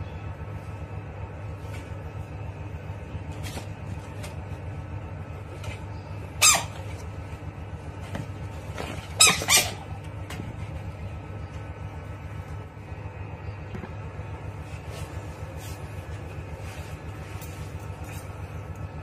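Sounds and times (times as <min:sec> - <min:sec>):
steady low hum: 0:00.0 - 0:19.0
shrill animal squawks: 0:06.4 - 0:07.0, 0:09.1 - 0:10.0.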